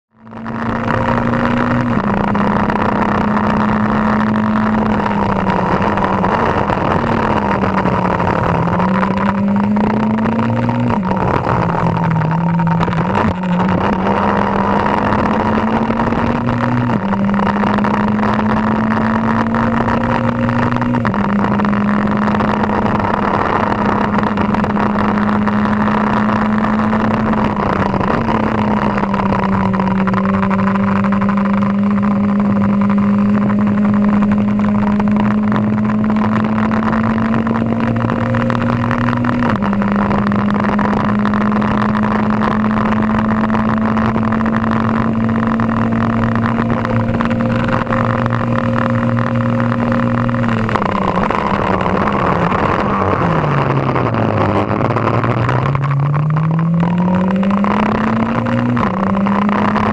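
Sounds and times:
racing car engine shifting gears: 0.2 - 59.9.

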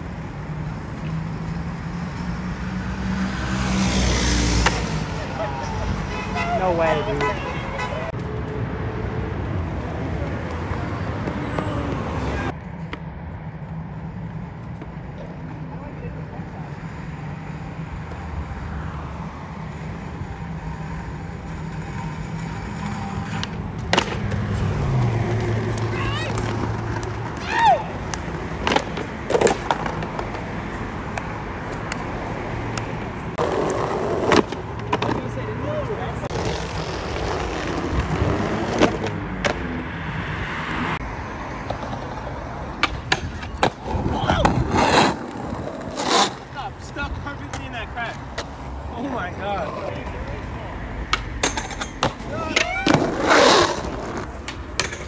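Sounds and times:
road traffic rumble: 0.0 - 55.0
skateboard wheels rolling on concrete: 0.0 - 55.0
skateboard clacking: 21.6 - 24.4, 25.4 - 30.5, 32.7 - 35.4, 41.6 - 55.0.

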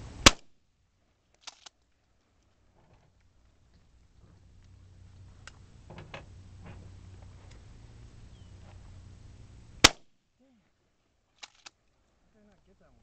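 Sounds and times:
shotgun shot: 0.2 - 0.5, 9.8 - 10.1.

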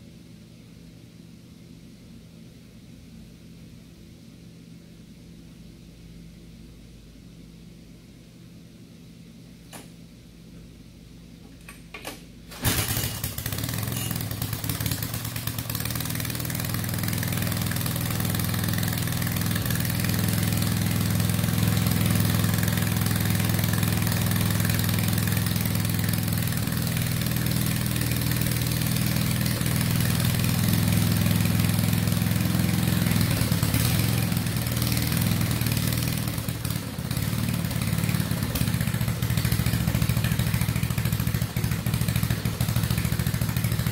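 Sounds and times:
rototiller engine pull-started and running: 12.5 - 43.9.

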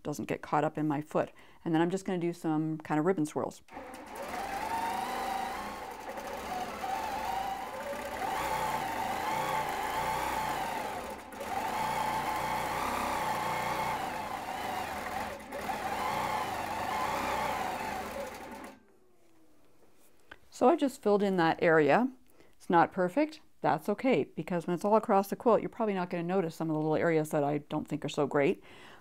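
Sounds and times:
quilting machine whirring: 3.7 - 18.9.

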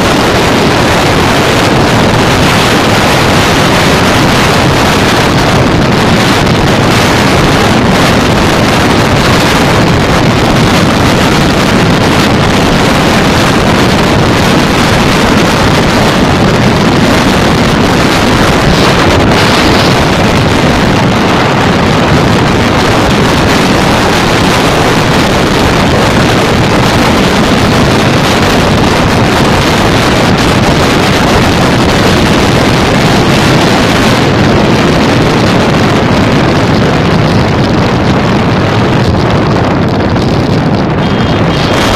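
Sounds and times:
motorcycle engine running: 0.0 - 41.9
wind rush on microphone: 0.0 - 41.9.

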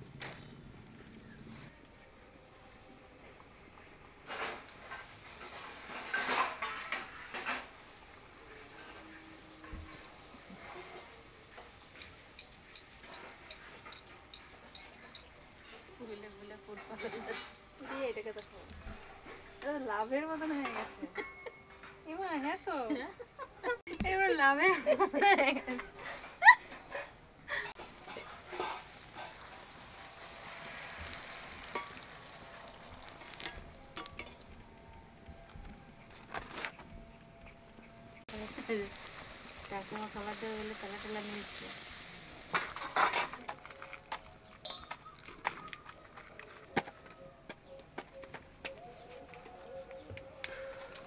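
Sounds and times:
food deep-frying in oil: 4.8 - 18.6, 27.8 - 34.5, 38.2 - 43.8
sharp crackles and light ticks: 27.8 - 35.7.

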